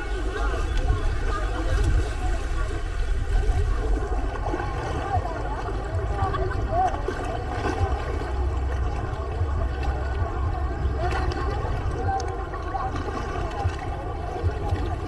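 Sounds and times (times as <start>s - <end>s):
distant voices: 0.0s - 15.0s
steady low rumble: 0.0s - 15.0s
water gently splashing: 0.0s - 15.0s.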